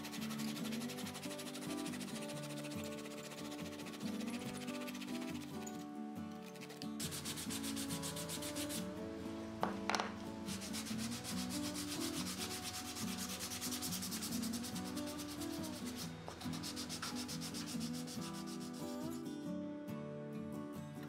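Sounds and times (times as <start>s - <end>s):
wood being sanded: 0.0s - 5.8s, 7.0s - 8.8s, 10.5s - 19.0s.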